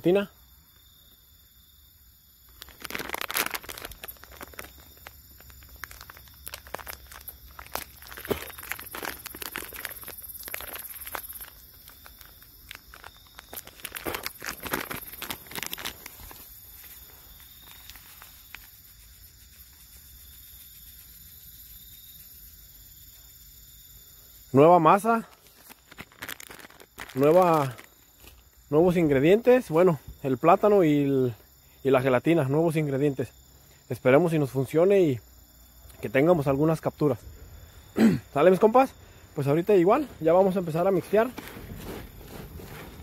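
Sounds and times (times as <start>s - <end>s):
crickets chirring: 0.0s - 43.0s
plastic bag crinkling: 2.5s - 18.8s, 25.2s - 28.4s, 39.9s - 43.0s.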